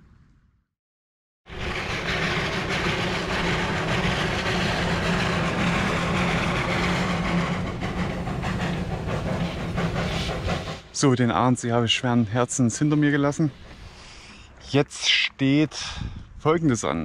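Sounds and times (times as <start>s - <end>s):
steam locomotive running: 1.5s - 14.4s.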